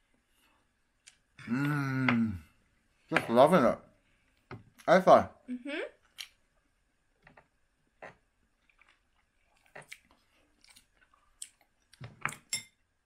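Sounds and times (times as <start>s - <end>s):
people chewing meat: 8.0s - 12.5s.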